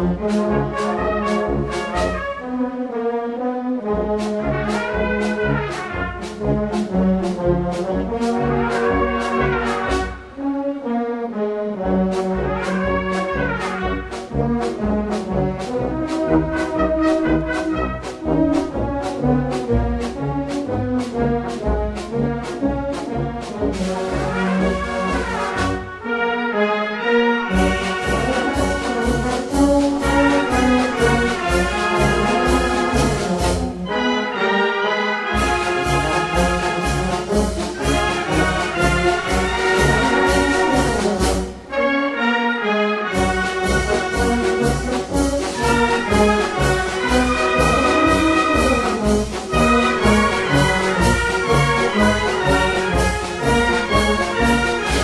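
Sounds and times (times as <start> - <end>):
brass band playing a march: 0.0 - 55.0.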